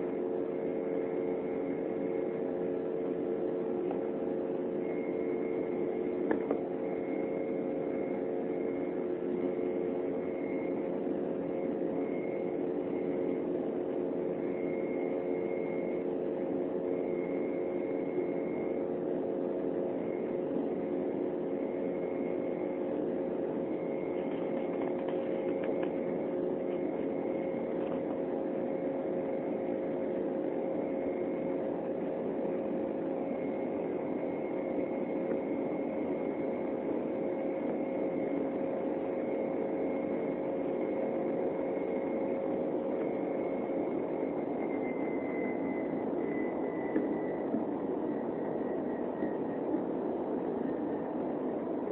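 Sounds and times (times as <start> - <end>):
faint high whine: 0.0 - 51.9
jet engine cabin drone: 0.0 - 51.9.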